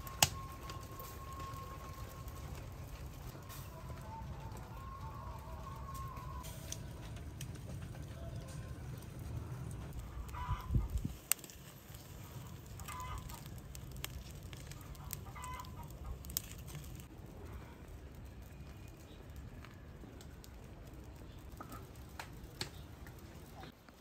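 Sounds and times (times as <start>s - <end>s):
low steady rumble: 0.0s - 11.3s.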